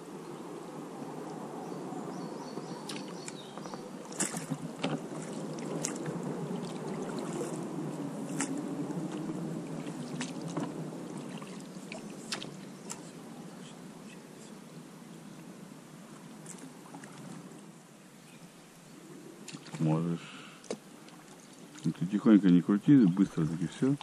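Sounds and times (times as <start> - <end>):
water lapping around boat: 2.2 - 14.2, 16.1 - 17.8, 19.2 - 24.0.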